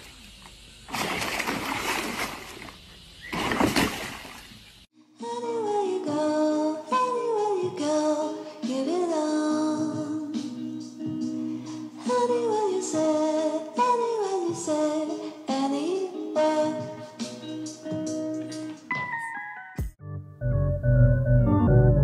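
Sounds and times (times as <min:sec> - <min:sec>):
dog splashing in water: 0:00.9 - 0:04.6
music with singing voice: 0:05.0 - 0:19.5.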